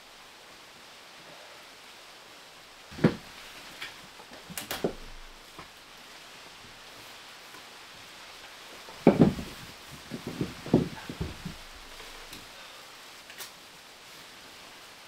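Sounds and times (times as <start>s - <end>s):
faint steady hiss: 0.0s - 15.0s
firewood knocking in metal stove: 2.9s - 3.3s, 8.9s - 12.4s.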